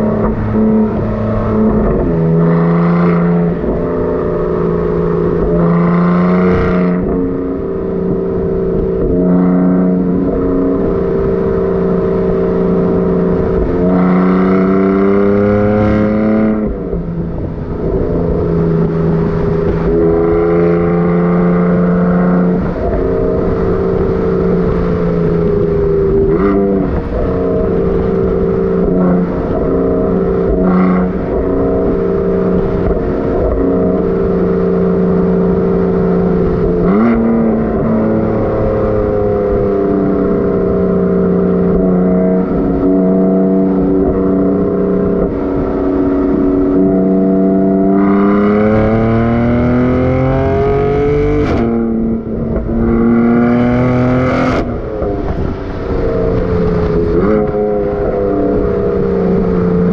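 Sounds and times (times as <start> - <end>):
car engine and exhaust revving: 0.0 - 59.9.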